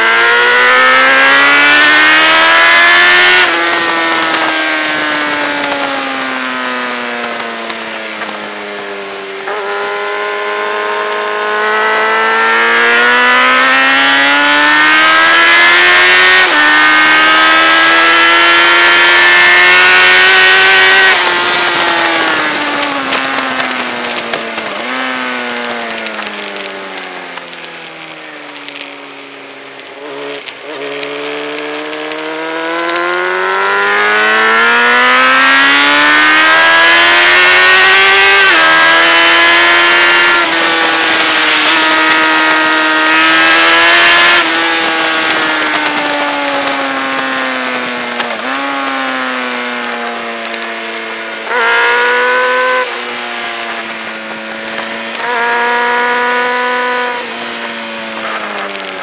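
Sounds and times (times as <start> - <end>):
motorcycle engine revving: 0.0 - 59.0
wind rush: 40.1 - 46.6.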